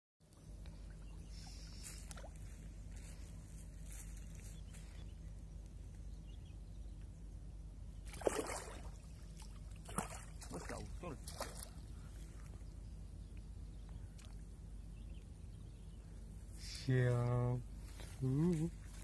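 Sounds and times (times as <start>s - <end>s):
steady low hum: 0.2s - 19.0s
fish splashing at water surface: 8.1s - 11.8s.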